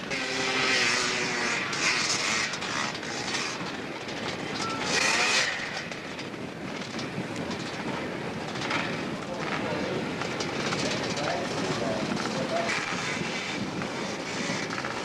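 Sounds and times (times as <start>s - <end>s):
motorcycle engine revving hard: 0.0s - 15.0s.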